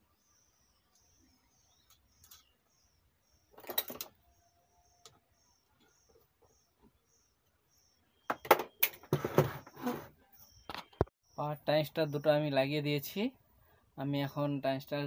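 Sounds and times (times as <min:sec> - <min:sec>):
faint high chirp: 0:00.0 - 0:09.0, 0:09.6 - 0:12.6.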